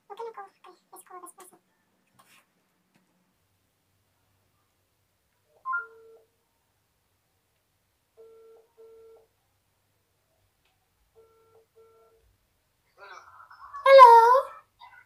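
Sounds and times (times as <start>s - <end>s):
telephone ringback tone: 8.2s - 9.2s, 11.2s - 12.2s.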